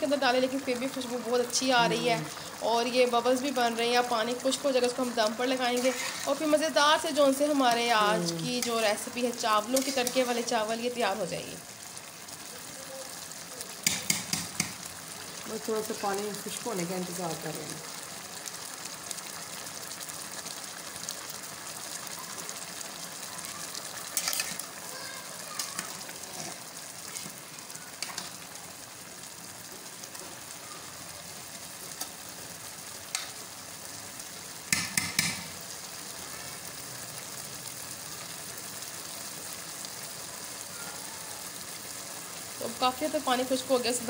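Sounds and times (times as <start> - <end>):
rice bubbling in a pot: 0.0 - 44.0
metal spatula scraping a pot: 5.7 - 6.6, 9.7 - 10.5, 24.2 - 24.6, 26.3 - 27.4.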